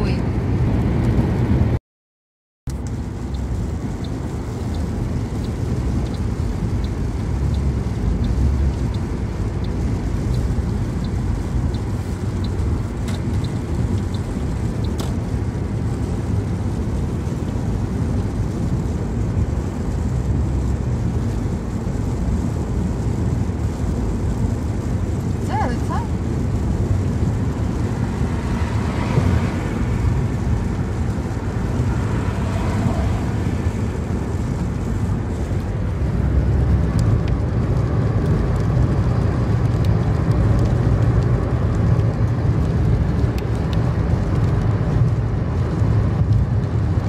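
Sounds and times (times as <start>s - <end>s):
car road and engine noise: 0.0s - 1.8s, 2.7s - 47.0s
light regular ticking: 2.7s - 16.0s.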